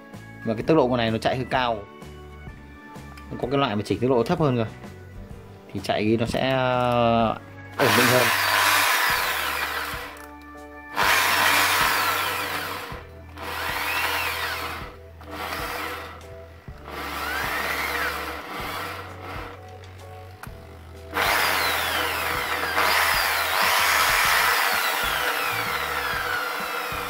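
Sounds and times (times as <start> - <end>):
electric drill whining: 7.8 - 10.3, 10.9 - 27.0.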